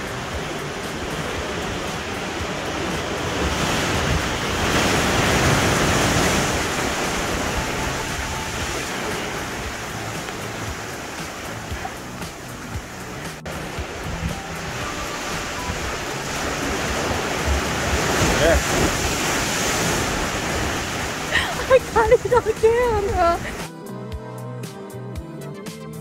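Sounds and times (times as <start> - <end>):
surf washing over boulders: 0.0 - 23.6.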